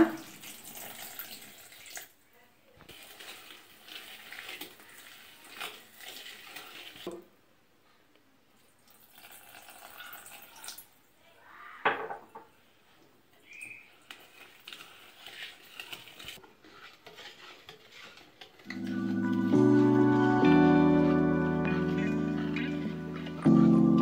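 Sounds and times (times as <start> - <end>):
whisk scraping batter in bowl: 2.9 - 7.1, 13.8 - 19.9.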